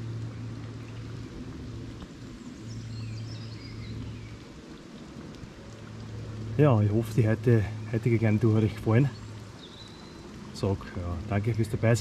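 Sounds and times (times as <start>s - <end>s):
small bird singing: 2.4s - 4.4s, 7.6s - 10.3s.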